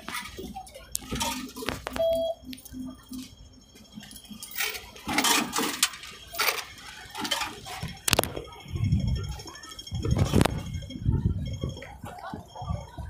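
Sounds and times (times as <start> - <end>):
short beep: 1.9 - 2.9
clicks and clatter: 4.0 - 8.5.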